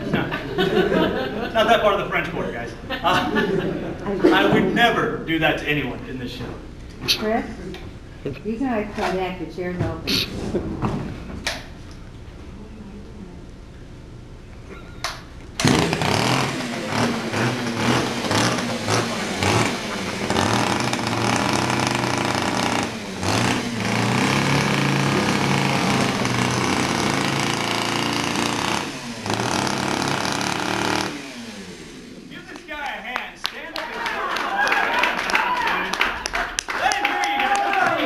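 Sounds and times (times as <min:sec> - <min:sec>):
chainsaw revving: 0:15.6 - 0:32.4.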